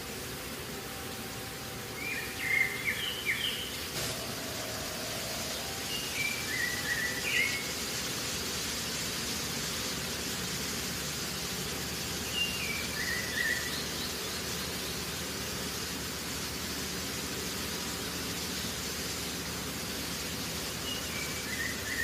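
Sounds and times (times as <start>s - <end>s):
steady hiss: 0.0s - 22.0s
bird whistling descending notes: 1.9s - 7.7s.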